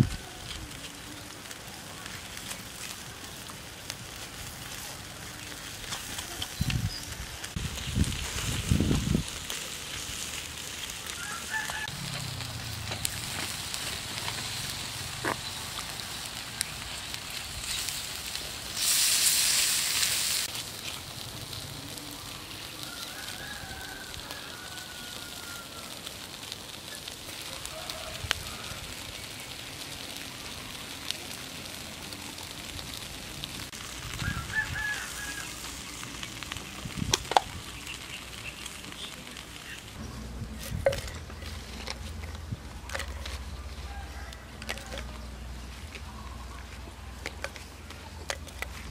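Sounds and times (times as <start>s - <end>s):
meat sizzling on a grill: 0.0s - 48.9s
rooster crowing: 11.0s - 12.2s, 22.7s - 26.1s, 27.4s - 29.1s, 34.2s - 35.8s, 43.6s - 45.3s
loud hiss: 11.9s - 21.0s.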